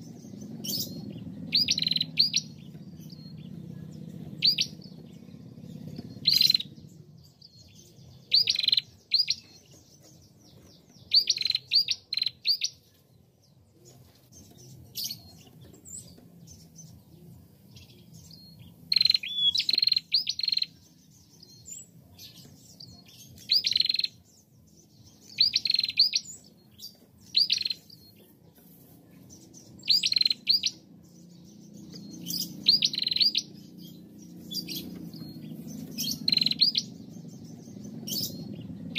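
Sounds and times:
bird chirping sharply: 0.0 - 3.6, 4.2 - 9.7, 11.0 - 12.8, 17.8 - 24.2, 25.2 - 28.2, 29.2 - 38.9.

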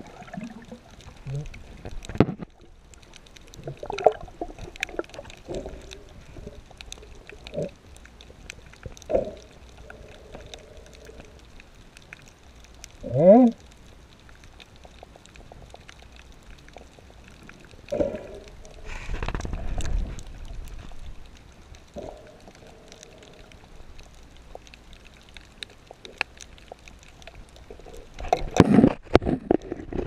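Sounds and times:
rush of water: 0.0 - 12.2
reef crackle of clicks: 0.0 - 30.0.

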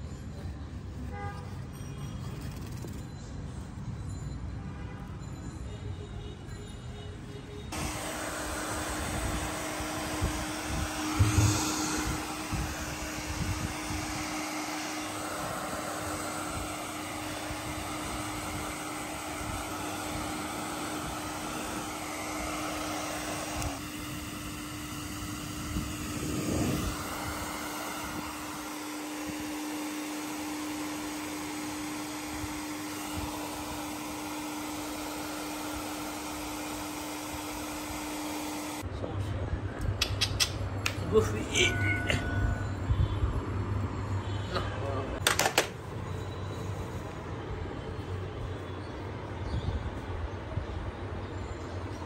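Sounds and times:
electric motor whirring: 7.7 - 38.8.

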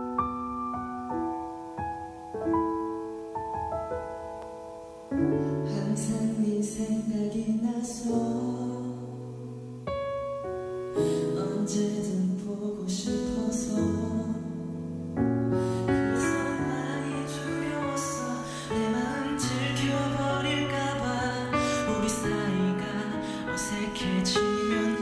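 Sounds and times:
piano: 0.0 - 25.0
pop ballad band: 4.1 - 25.0
bass: 5.2 - 25.0.

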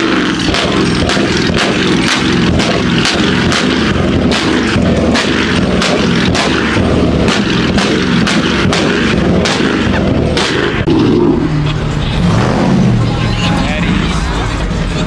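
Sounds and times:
exhaust pops and cracks: 0.0 - 10.9
car engine at high revs: 0.0 - 15.0.

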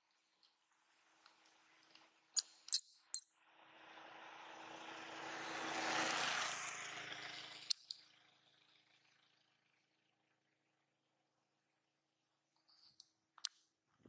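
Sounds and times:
vehicle passing on road: 3.4 - 10.0.

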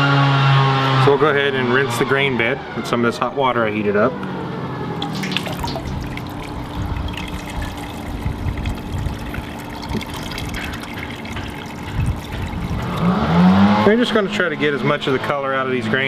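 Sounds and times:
hot water pouring and splashing: 5.0 - 13.8.

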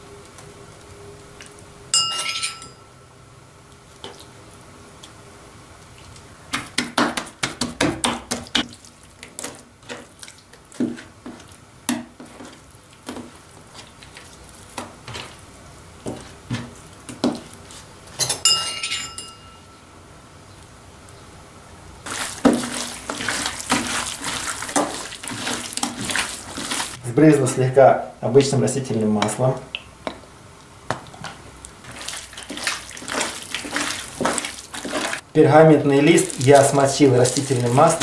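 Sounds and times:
metal spoon clinking: 2.0 - 2.9, 18.2 - 19.7.

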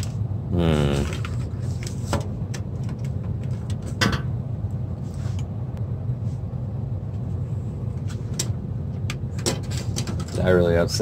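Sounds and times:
low rumble: 2.4 - 9.9.

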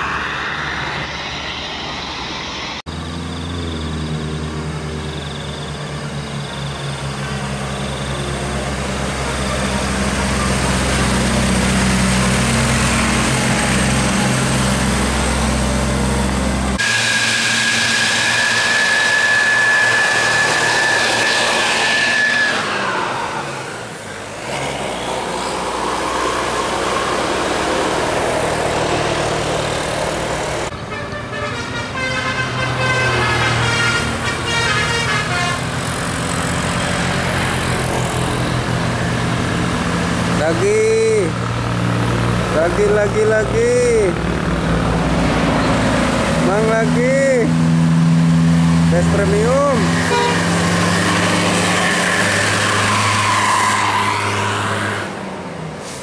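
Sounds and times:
bus engine rumble: 0.0 - 56.0
musical air-horn tune: 30.7 - 35.6, 50.0 - 51.3
long air-horn note: 30.8 - 35.6, 50.0 - 54.1.

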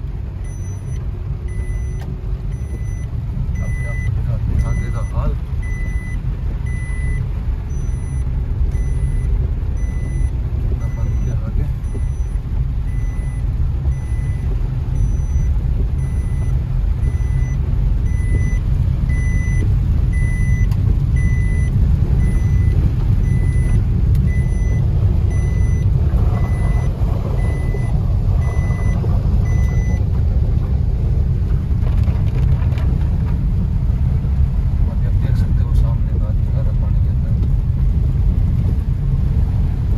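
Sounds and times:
car engine and tyres rumbling: 0.0 - 39.9
dashboard warning beep: 0.4 - 30.1.

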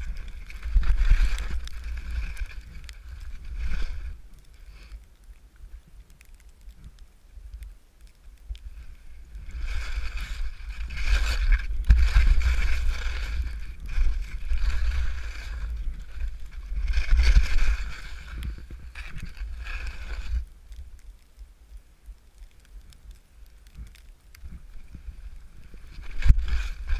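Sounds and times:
skis swishing through snow: 0.0 - 4.9, 8.7 - 20.5, 24.5 - 26.9
wind rumbling on microphone: 0.0 - 26.9.

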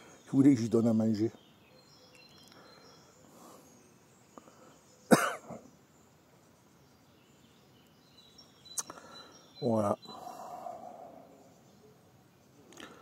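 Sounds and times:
man coughing: 5.1 - 5.6.

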